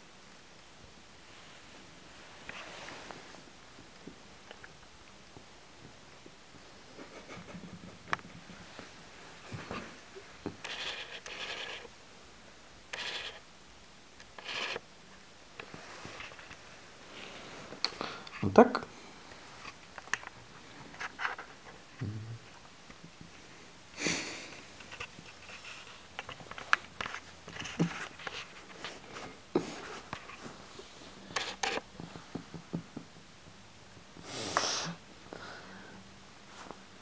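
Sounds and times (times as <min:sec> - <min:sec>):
faint rustling and clicks: 0:00.2 - 0:12.0, 0:24.6 - 0:34.2.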